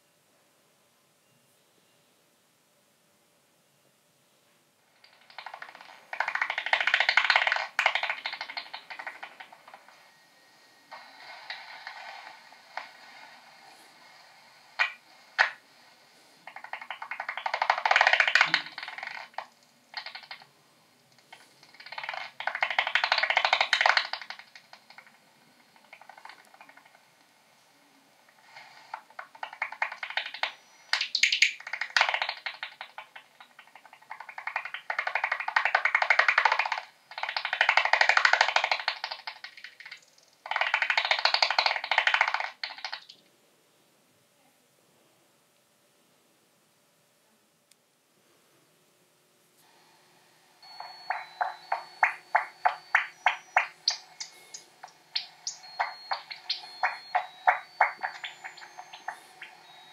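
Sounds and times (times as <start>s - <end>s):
bat echolocation chirps: 5.0s - 10.0s, 16.4s - 20.5s, 21.2s - 25.2s, 25.8s - 27.0s, 28.3s - 43.2s, 50.6s - 59.9s
rapid dry clicks: 5.0s - 10.0s, 10.9s - 15.6s, 16.4s - 20.5s, 21.1s - 27.1s, 28.3s - 43.2s, 50.6s - 59.9s.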